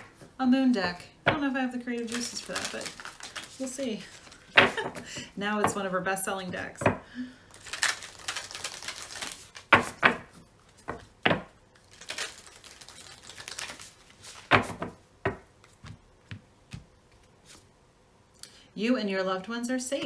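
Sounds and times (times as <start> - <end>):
cards shuffling and rustling: 1.9 - 5.8, 7.5 - 11.1, 11.8 - 17.7.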